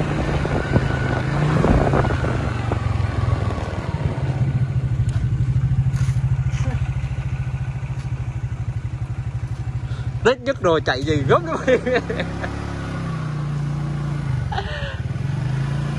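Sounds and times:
motorcycle engine running: 0:00.0 - 0:15.9
road noise: 0:00.0 - 0:15.9.

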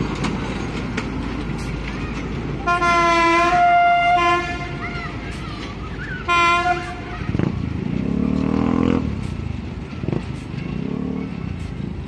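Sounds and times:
locomotive horn blast: 0:02.6 - 0:04.8, 0:06.3 - 0:07.5.

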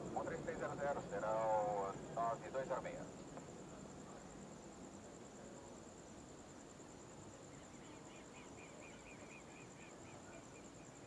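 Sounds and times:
quick insect chirps: 0:02.8 - 0:11.0.

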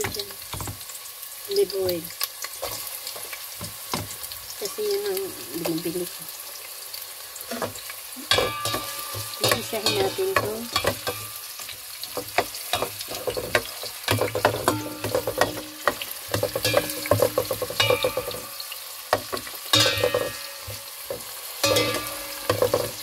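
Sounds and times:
onion and garlic sizzling in oil: 0:00.0 - 0:23.0
spoon scraping metal pot: 0:07.5 - 0:23.0.

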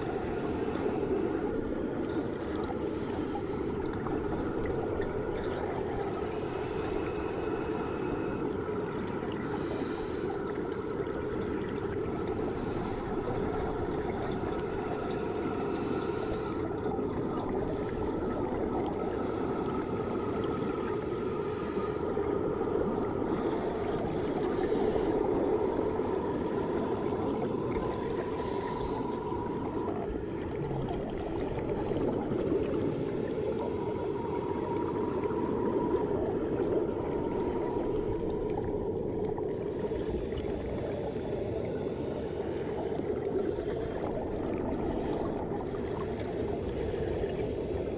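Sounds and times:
faint steady tones: 0:00.0 - 0:47.9
muffled underwater wash: 0:00.0 - 0:47.9.

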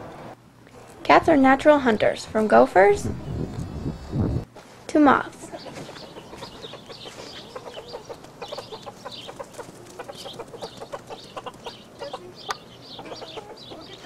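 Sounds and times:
chickens clucking: 0:04.5 - 0:14.0.

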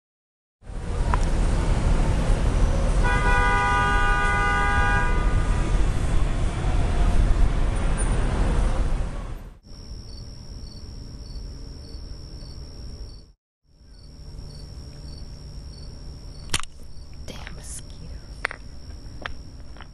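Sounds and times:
loud city traffic: 0:00.6 - 0:11.7
crickets trilling: 0:09.7 - 0:19.9
sharp click: 0:16.4 - 0:16.8.

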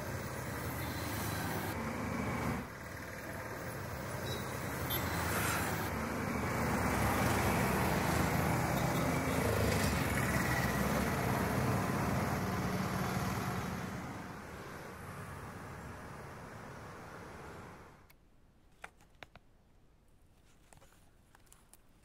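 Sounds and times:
vehicles passing close by: 0:00.0 - 0:18.1.

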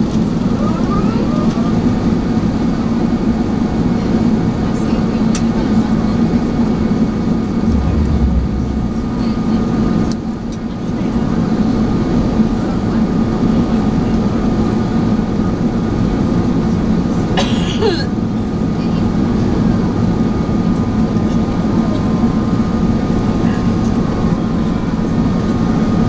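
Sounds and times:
rushing airflow: 0:07.6 - 0:10.2
airliner cabin engine hum: 0:07.6 - 0:11.3
brief sharp sound: 0:07.7 - 0:10.1.

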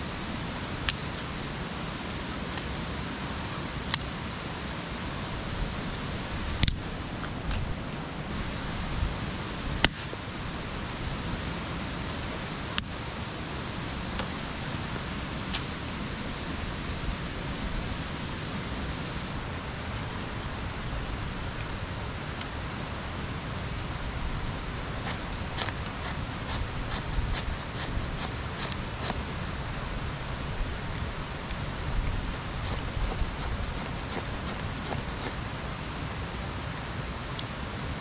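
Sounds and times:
steady rushing background noise: 0:00.0 - 0:38.0
dry sticks snapping: 0:06.6 - 0:08.0
ferro rod striker scraping: 0:25.0 - 0:29.2, 0:32.3 - 0:35.4.

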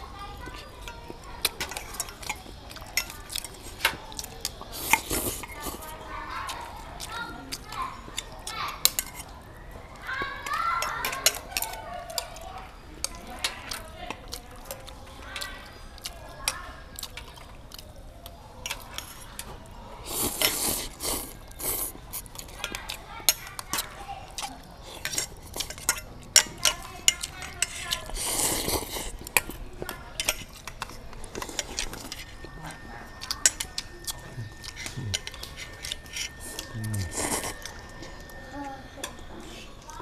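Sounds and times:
chopsticks clinking on metal bowls: 0:00.1 - 0:40.0
noodles being slurped: 0:20.0 - 0:22.3, 0:27.7 - 0:29.4, 0:33.6 - 0:38.2.

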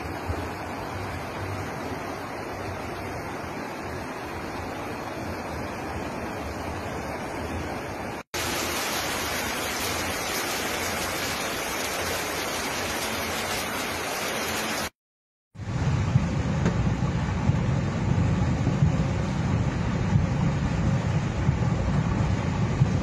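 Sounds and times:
floodwater rushing: 0:00.0 - 0:15.0
heavy rain: 0:00.0 - 0:15.0, 0:15.6 - 0:23.0.

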